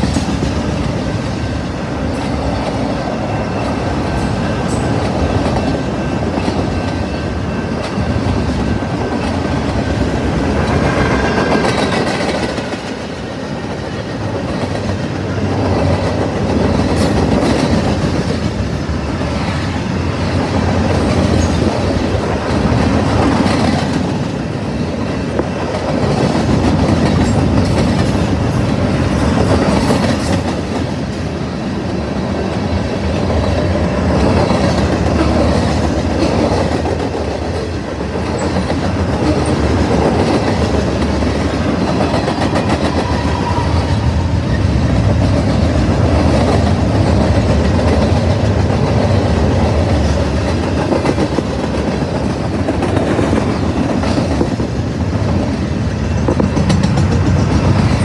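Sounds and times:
freight train rolling past: 0.0s - 58.0s
wheels clacking over rail joints: 32.3s - 58.0s.

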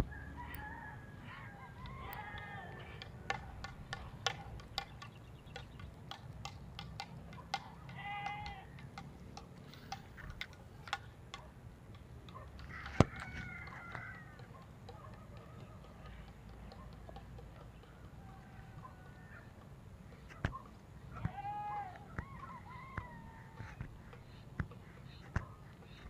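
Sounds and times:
faint rooster crowing: 0.0s - 3.5s, 12.6s - 16.8s, 17.7s - 19.7s, 21.2s - 24.2s.

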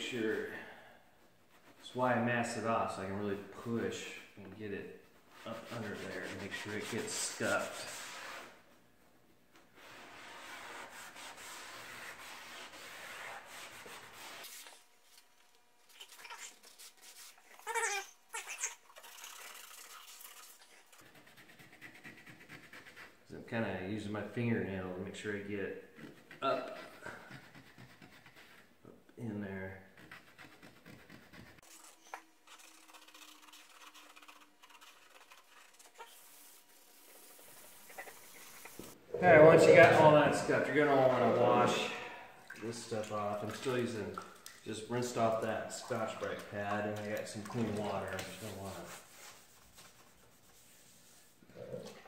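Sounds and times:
pad scrubbing painted panel: 5.3s - 8.6s, 9.8s - 14.8s, 26.0s - 28.8s, 29.8s - 41.9s, 45.0s - 51.4s.

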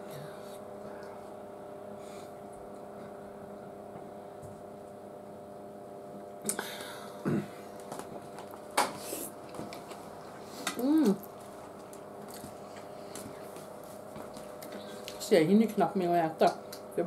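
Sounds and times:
electrical hum: 0.0s - 17.0s.

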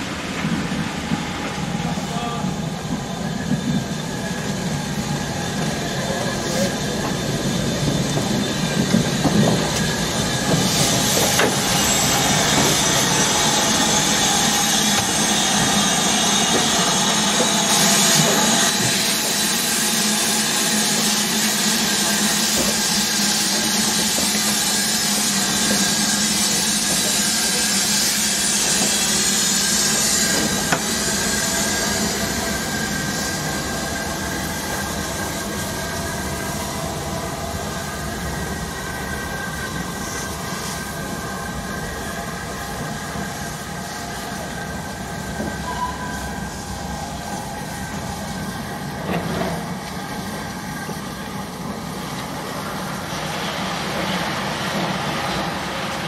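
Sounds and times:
steam hissing: 0.0s - 56.0s.

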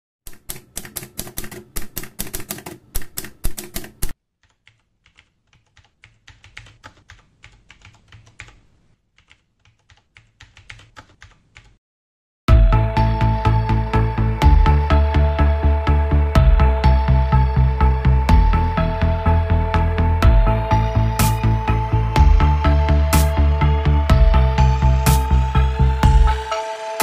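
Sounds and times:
computer keyboard typing: 0.3s - 8.6s, 9.2s - 11.8s
typewriter keys clacking: 0.3s - 8.6s.

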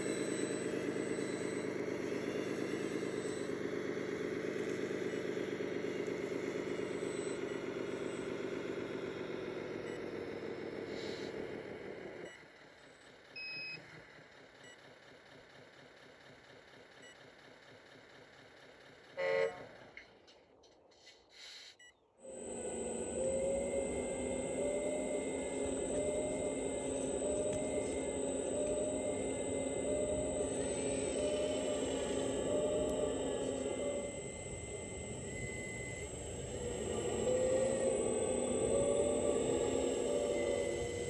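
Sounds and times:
mechanical engine drone: 0.0s - 13.2s, 22.2s - 41.0s
short horn toot: 19.2s - 19.8s
quiet hum: 22.3s - 41.0s.

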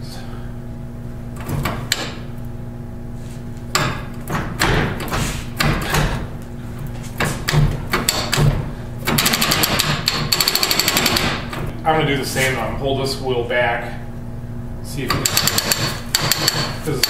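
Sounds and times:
differential locker ratcheting clicks: 1.4s - 2.2s, 7.4s - 11.7s, 15.1s - 17.0s.

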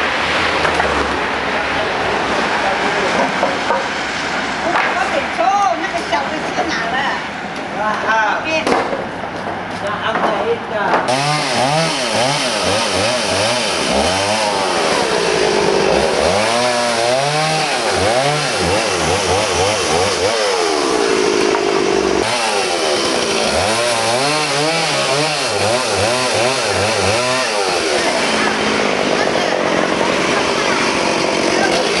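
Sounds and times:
chainsaw cutting branches: 11.1s - 32.0s.

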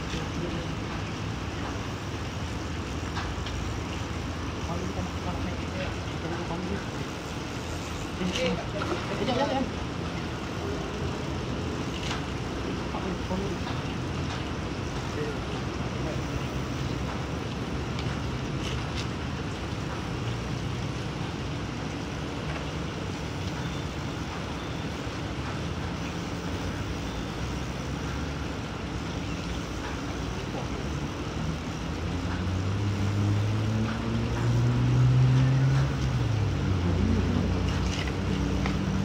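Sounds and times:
outdoor background noise: 0.0s - 39.0s
passing engine hum: 30.3s - 39.0s.

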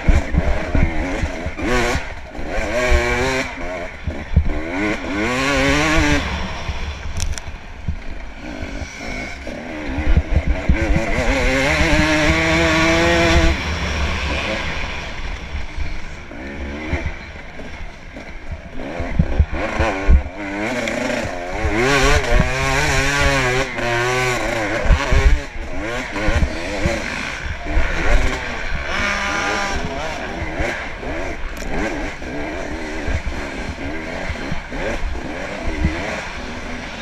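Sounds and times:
dirt bike engine revving: 0.0s - 37.0s
wind rumble on microphone: 5.4s - 17.9s.

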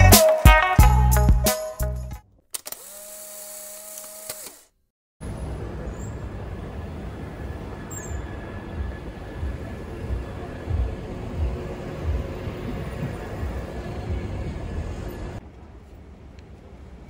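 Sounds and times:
small motor humming: 2.6s - 4.8s
cars passing with low rumble: 5.2s - 17.0s.

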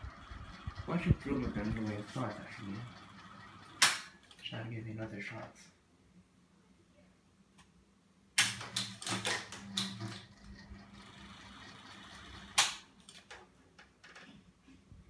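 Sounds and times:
fan motor humming and whirring: 0.0s - 5.4s, 8.6s - 13.2s.

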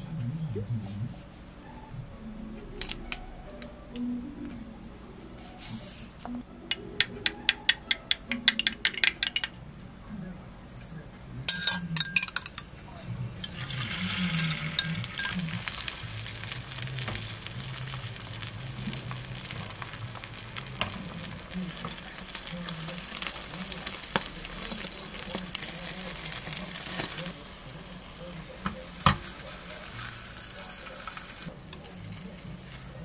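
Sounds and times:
egg sizzling in a pan: 13.3s - 31.5s.

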